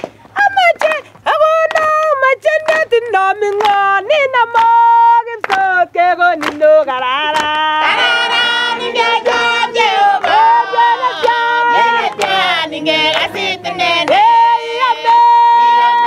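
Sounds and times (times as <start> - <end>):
hand claps: 0.0 - 7.8, 8.9 - 14.4
woman singing: 0.4 - 16.0
children singing: 7.8 - 16.0.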